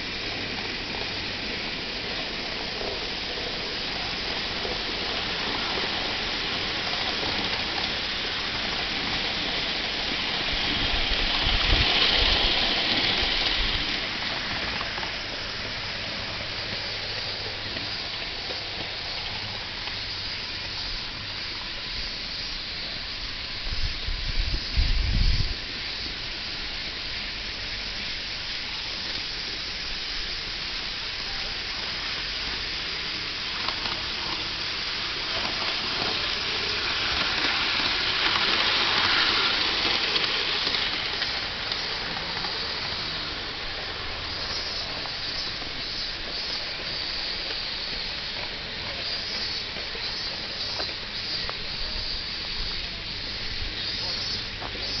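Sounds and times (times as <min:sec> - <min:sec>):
steam locomotive hissing: 0:00.0 - 0:55.0.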